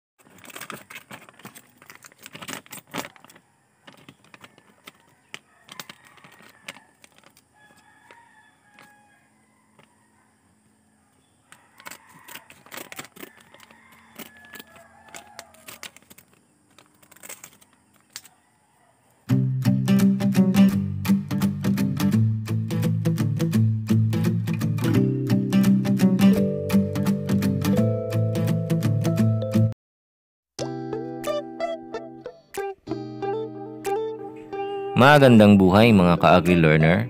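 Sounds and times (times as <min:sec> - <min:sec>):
foil wrapper crinkling: 0:00.2 - 0:08.9, 0:11.5 - 0:18.4
scissors snipping: 0:11.8 - 0:18.4.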